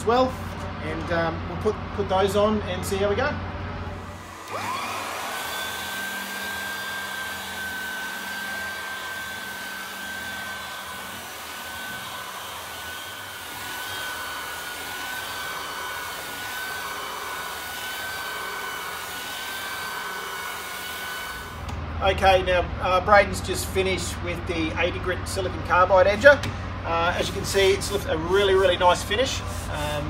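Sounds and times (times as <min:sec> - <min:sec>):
floor sander motor whine: 0:03.4 - 0:21.8
sanding disc hissing on wood: 0:04.0 - 0:21.6, 0:27.2 - 0:30.0.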